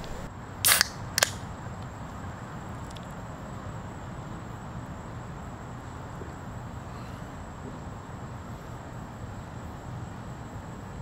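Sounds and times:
beer can hiss: 0:00.0 - 0:01.4.

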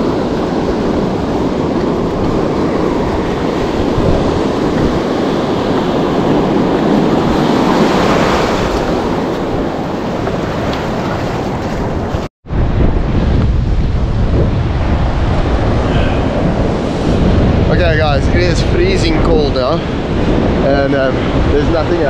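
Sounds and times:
surf washing on a beach: 0:00.0 - 0:22.0
wind buffeting microphone: 0:00.0 - 0:22.0.

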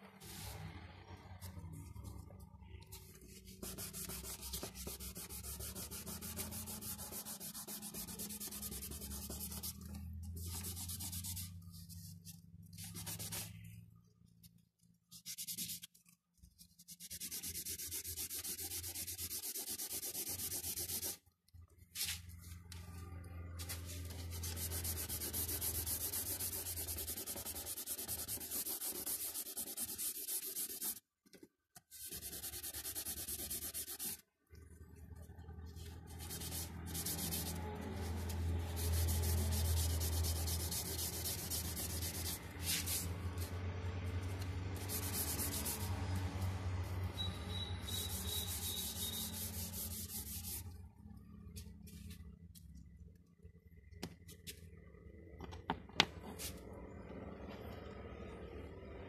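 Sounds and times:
fingers rubbing pastel on paper: 0:02.6 - 0:13.7, 0:15.1 - 0:21.2, 0:23.9 - 0:31.0, 0:31.9 - 0:34.2, 0:36.1 - 0:43.5, 0:44.8 - 0:46.0.

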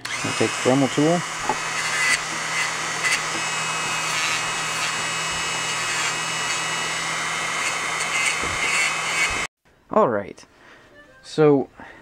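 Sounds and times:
rotary tool grinding metal: 0:00.0 - 0:09.5.

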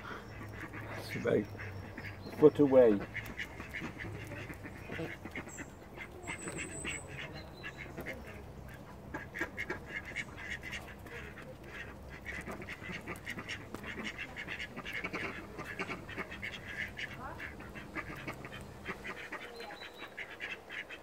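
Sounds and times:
squirrel crunching seeds: 0:02.2 - 0:08.8, 0:09.4 - 0:19.3.

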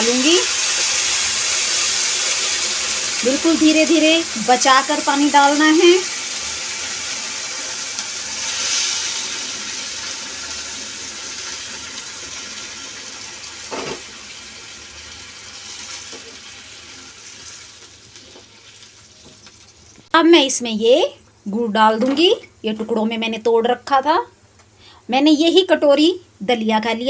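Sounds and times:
water hissing in hot pan: 0:00.0 - 0:20.0.

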